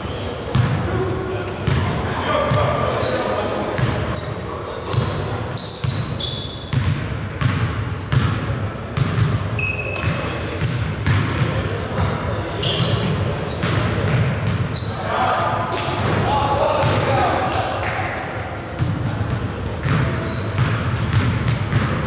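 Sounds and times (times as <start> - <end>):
sneakers squeaking: 0.0 - 22.0
basketball bouncing on hardwood floor: 0.5 - 0.8, 6.7 - 8.4, 9.0 - 9.4, 10.8 - 11.6, 18.8 - 22.0.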